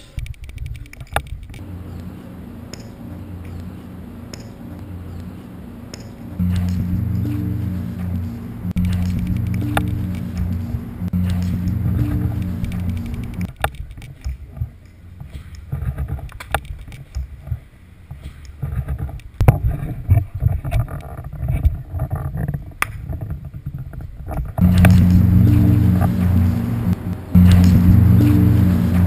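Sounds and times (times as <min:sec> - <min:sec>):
camera handling rumble: 0:00.2 - 0:01.6
sharp knocks: 0:24.6 - 0:29.0.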